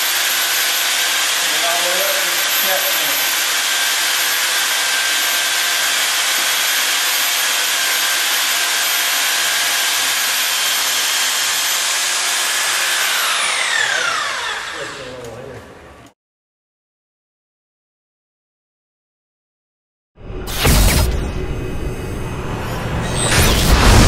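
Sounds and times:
wire puller motor whining: 0:00.0 - 0:16.1.

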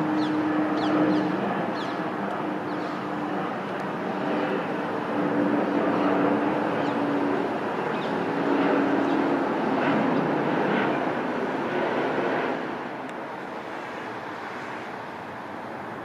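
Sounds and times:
aircraft engine noise: 0:00.0 - 0:16.0
bird chirps: 0:00.2 - 0:02.0.

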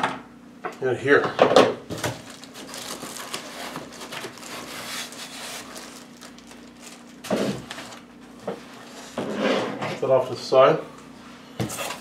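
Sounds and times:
plastic wrap and foam rustling: 0:01.9 - 0:09.2.

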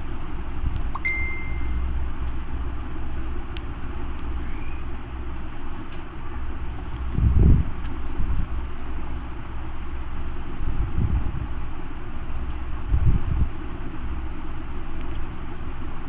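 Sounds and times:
low rumble with hiss: 0:00.0 - 0:16.0
short high ding: 0:01.0 - 0:01.8.

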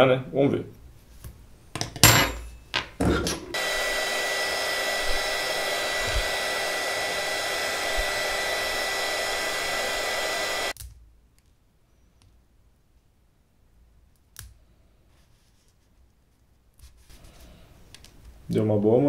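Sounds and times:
heat gun blowing hot air: 0:03.4 - 0:10.8.

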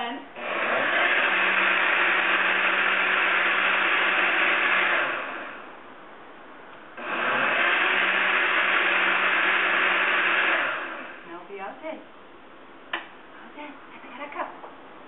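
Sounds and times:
blender running: 0:00.4 - 0:05.6, 0:07.0 - 0:11.2.

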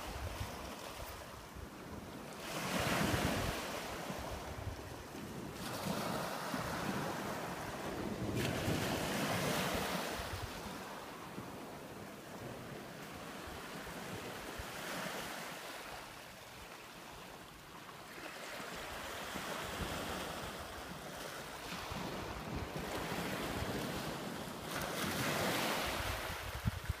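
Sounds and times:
wind buffeting microphone: 0:02.8 - 0:12.8, 0:21.6 - 0:27.0.

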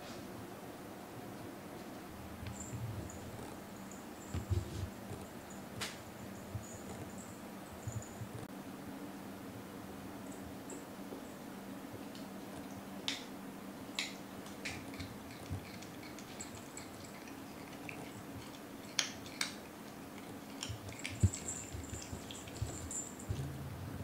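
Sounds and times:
low room hum: 0:00.0 - 0:24.0
cats pawing toys clicking: 0:14.0 - 0:23.4.

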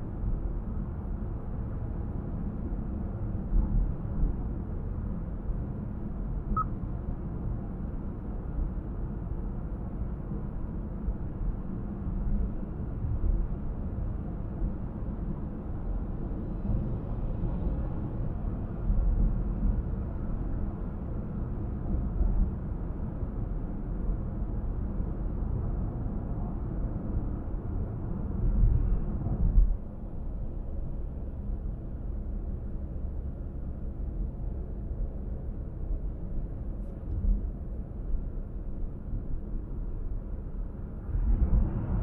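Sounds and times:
road and tyre rumble: 0:00.0 - 0:42.0.

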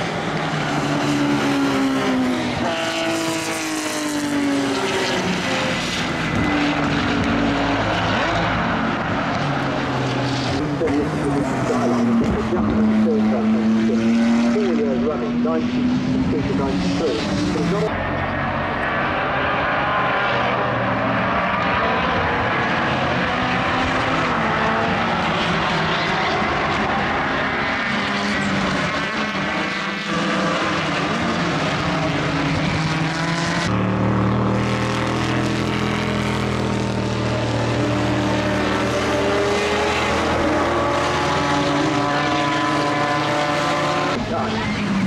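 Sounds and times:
race car engine at high revs: 0:00.0 - 0:45.0.

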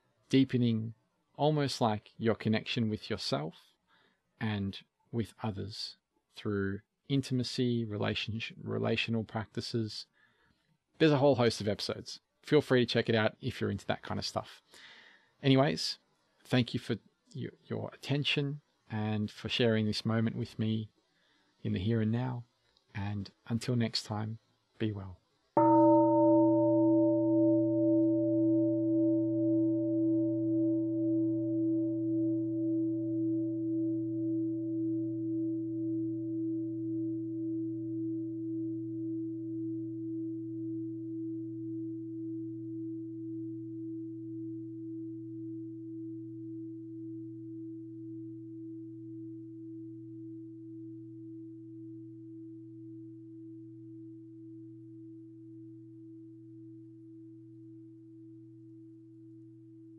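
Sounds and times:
singing bowl ringing: 0:25.6 - 0:59.9.

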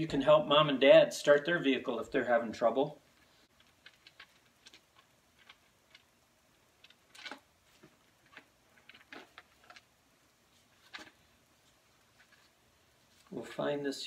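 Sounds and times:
pages rustling and turning: 0:06.8 - 0:09.9, 0:10.5 - 0:13.4.

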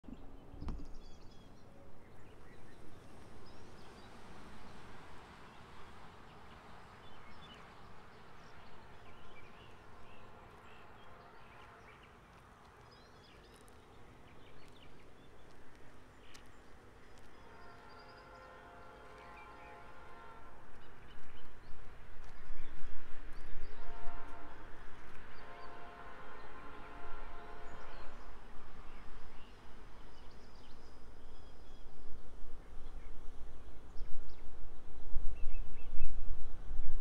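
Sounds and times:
wind rumbling on microphone: 0:31.2 - 0:37.0.

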